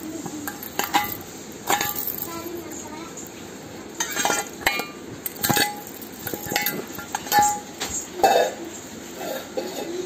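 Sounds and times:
metal objects clinking: 0.2 - 2.8, 3.9 - 8.0.

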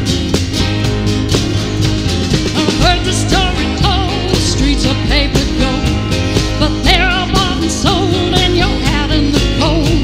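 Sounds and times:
low bass line: 0.0 - 10.0
strummed acoustic guitars: 0.0 - 10.0
woman singing with vibrato: 2.6 - 10.0.

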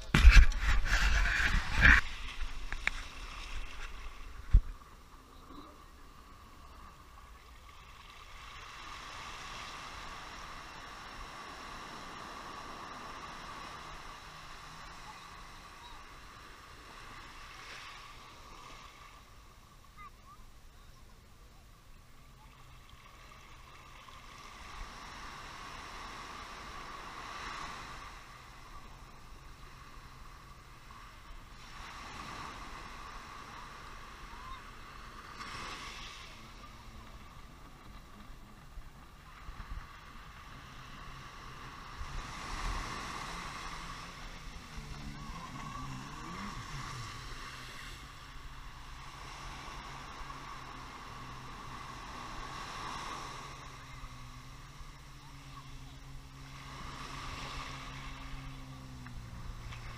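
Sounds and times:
jet ski engine humming: 0.0 - 59.9
small waves breaking on sand: 0.0 - 59.9.

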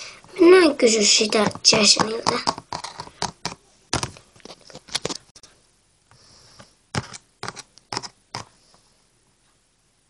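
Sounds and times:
plastic toy figurines tapping: 1.2 - 4.2.

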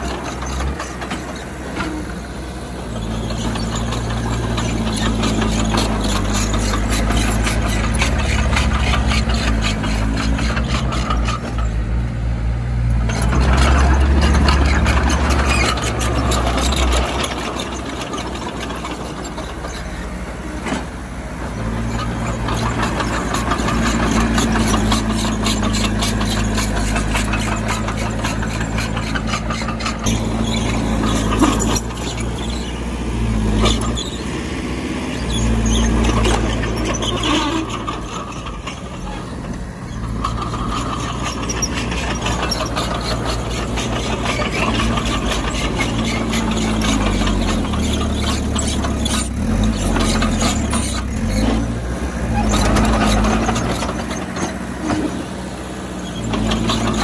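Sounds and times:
metallic track clanking: 0.0 - 12.1, 12.8 - 57.0
track squealing: 0.0 - 12.1, 12.8 - 57.0
bulldozer diesel engine: 0.0 - 57.0.

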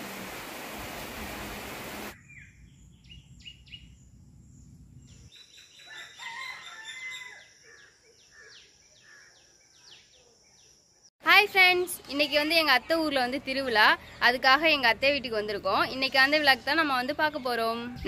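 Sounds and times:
heavy rain hissing: 0.0 - 2.2
small birds chirping: 2.2 - 11.1
rooster crowing: 5.8 - 7.6.

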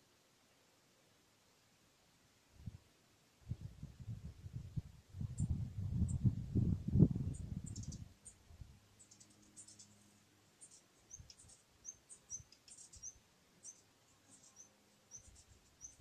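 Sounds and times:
high-pitched bird chirps: 7.6 - 8.0, 10.6 - 16.0.

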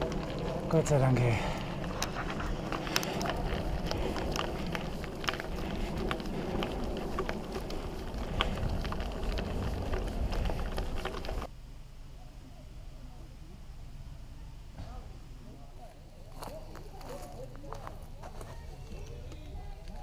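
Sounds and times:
bike tyres rumbling: 0.0 - 11.5
wind noise: 0.0 - 11.5.

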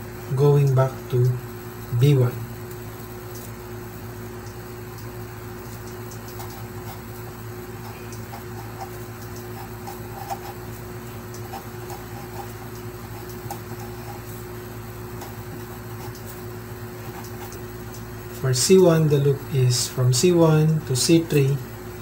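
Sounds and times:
electrical hum: 0.0 - 22.0
marker scratching on paper: 6.2 - 14.5, 15.2 - 16.4, 17.0 - 17.6.

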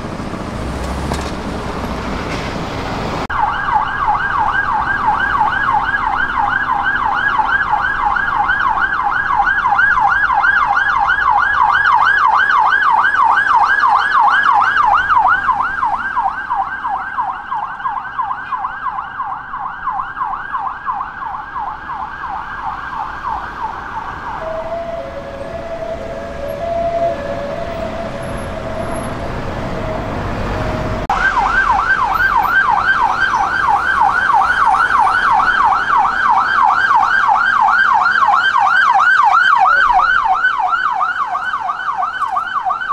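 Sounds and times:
road traffic: 0.0 - 42.9
police siren yelp: 3.3 - 30.3, 31.0 - 42.9
two-note siren tone: 24.3 - 30.2.

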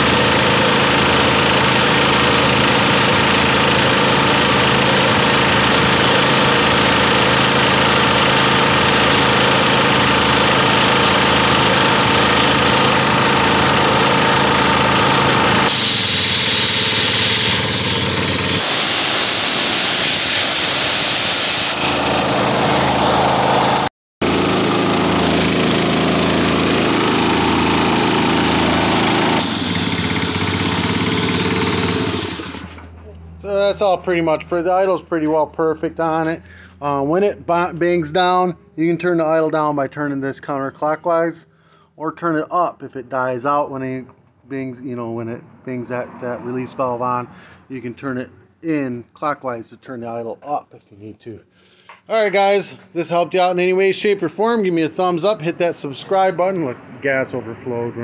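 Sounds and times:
engine running air compressor: 0.0 - 34.0, 36.3 - 36.9, 47.3 - 47.7
air hissing: 13.2 - 22.6, 27.9 - 32.8.

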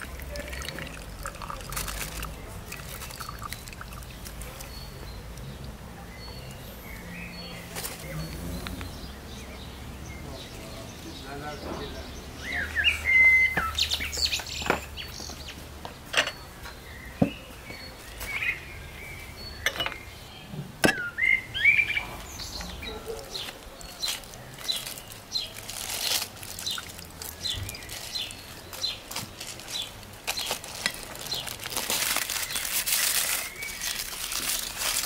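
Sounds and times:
aluminium foil crinkling: 0.0 - 4.9, 23.0 - 35.0
small birds chirping: 0.0 - 35.0.

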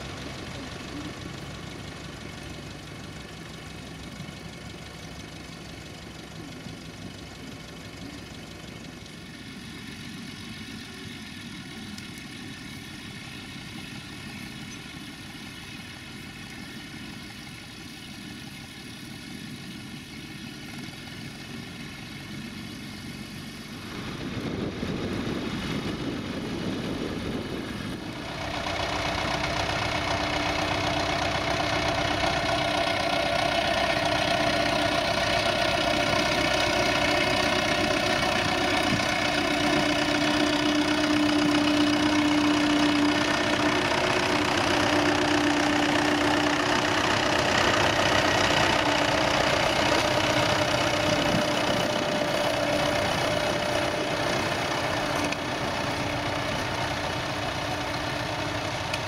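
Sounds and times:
tractor engine running under load: 0.0 - 59.0.

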